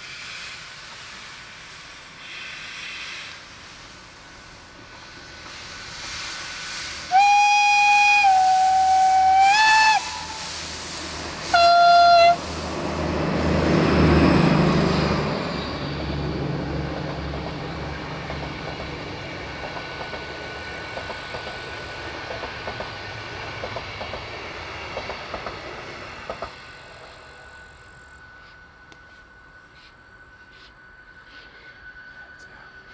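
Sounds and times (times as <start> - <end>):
locomotive passing: 3.6 - 32.9
train whistle blasts: 7.1 - 10.8, 11.4 - 12.5.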